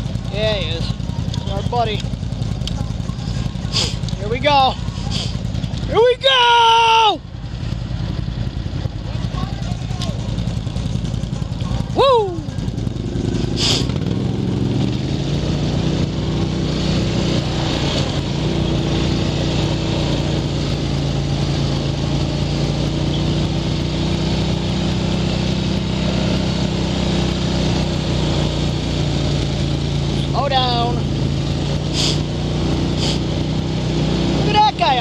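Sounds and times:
atv engine running: 0:00.0 - 0:35.0.

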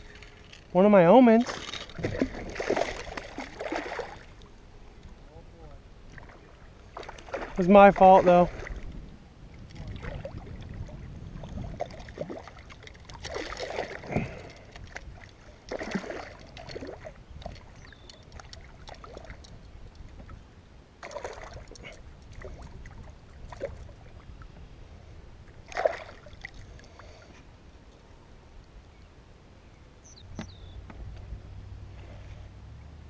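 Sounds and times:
wind rumble on microphone: 0:01.6 - 0:03.7, 0:05.0 - 0:20.9, 0:21.6 - 0:33.0
fish splashing at water surface: 0:02.0 - 0:04.4.

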